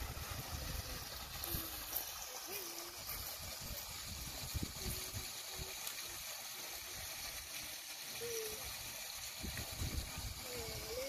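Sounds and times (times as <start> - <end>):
hiss of moving water: 0.0 - 11.0
wind rumble on microphone: 9.4 - 10.9.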